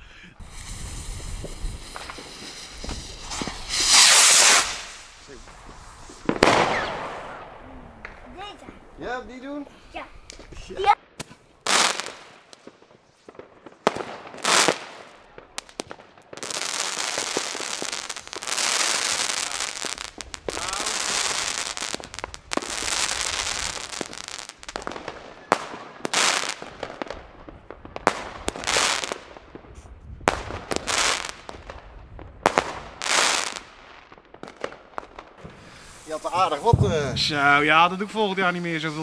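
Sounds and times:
fireworks hissing and crackling: 0.0 - 39.0
firework pops and bangs: 0.4 - 8.9, 10.2 - 37.6
firework bang: 0.4 - 9.0, 35.4 - 37.8.

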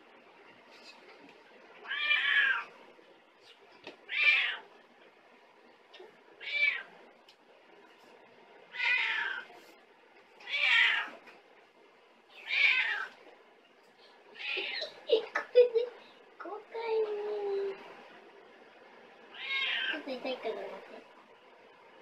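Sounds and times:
cat meowing: 1.8 - 2.7, 4.1 - 4.7, 6.4 - 6.9, 8.7 - 9.5, 10.4 - 11.2, 12.3 - 13.1, 19.3 - 20.0.

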